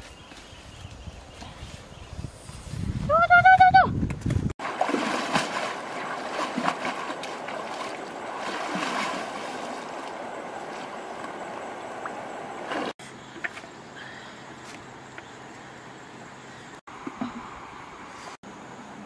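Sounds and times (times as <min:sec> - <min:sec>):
river water rushing: 0:04.6 - 0:13.0
water sloshing around wading person: 0:04.6 - 0:13.8.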